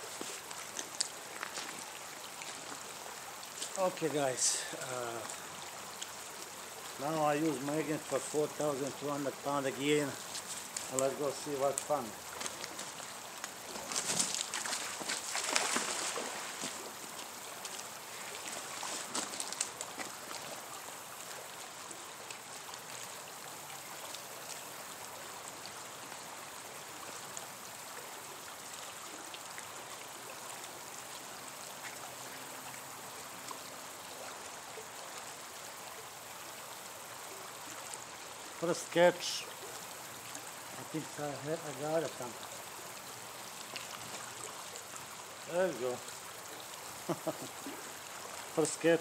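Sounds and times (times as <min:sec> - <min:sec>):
rope ticks and rustles: 0:00.0 - 0:27.8, 0:28.5 - 0:32.4, 0:37.7 - 0:49.0
creek rushing: 0:00.0 - 0:49.0
magnet splashing into water: 0:13.7 - 0:16.8.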